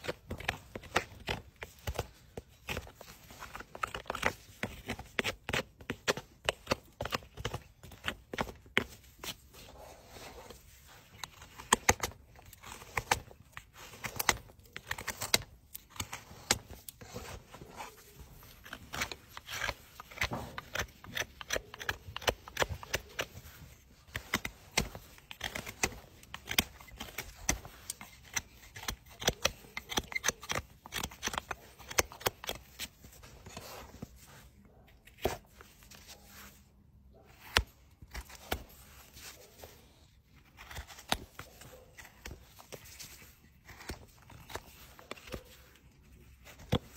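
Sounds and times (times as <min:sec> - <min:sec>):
knife scraping hoof horn: 0:12.0 - 0:34.2.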